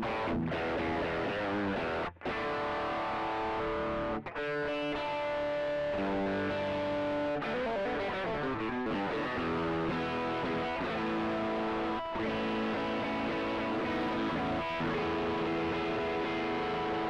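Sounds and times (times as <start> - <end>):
overdriven electric guitar chords: 0.0 - 17.0.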